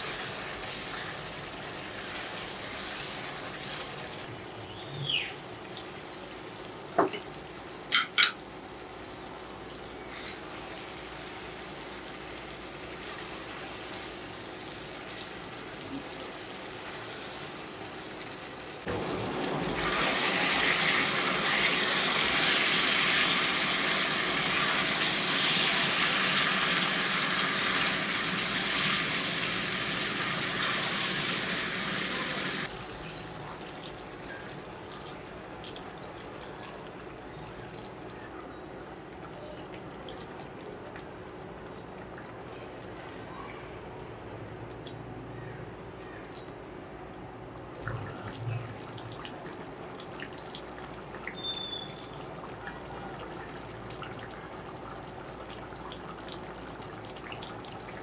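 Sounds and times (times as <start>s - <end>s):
curry simmering in a pot: 48.2s - 58.0s.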